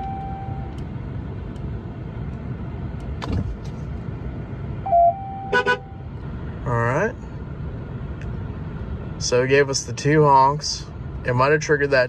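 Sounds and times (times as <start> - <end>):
electronic dashboard chime: 0.0 - 0.8, 4.8 - 6.1
low cab hum: 0.0 - 12.0.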